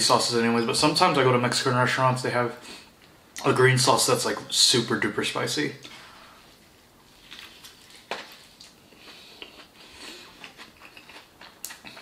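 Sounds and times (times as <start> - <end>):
chewing with clicks and smacks: 7.3 - 12.0.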